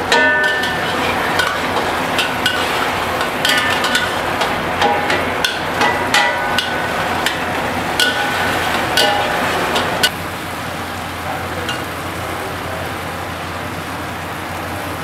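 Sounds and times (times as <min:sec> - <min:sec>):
metal spatula clanging on wok: 0:00.0 - 0:10.1, 0:11.7 - 0:11.9
chicken sizzling in a wok: 0:00.0 - 0:15.0.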